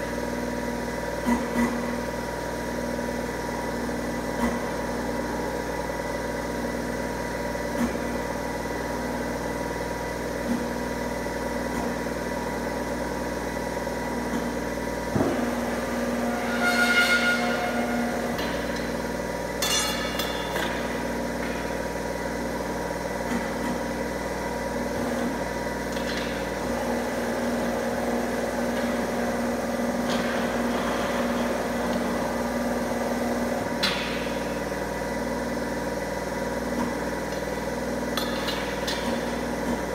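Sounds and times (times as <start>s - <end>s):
bending machine humming: 0.0s - 39.9s
ringing metal clang: 19.6s - 20.9s
sharp metal knocks: 19.6s - 20.9s.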